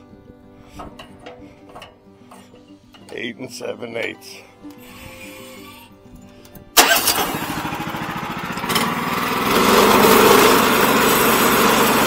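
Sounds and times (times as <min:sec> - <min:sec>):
small engine running: 0:06.8 - 0:12.0.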